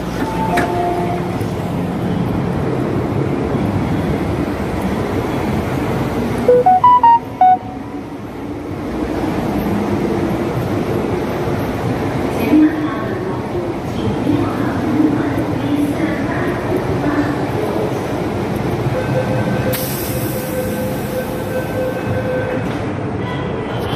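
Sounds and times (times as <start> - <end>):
metro platform rumble and hum: 0.0 - 23.9
electronic chime: 6.5 - 7.8.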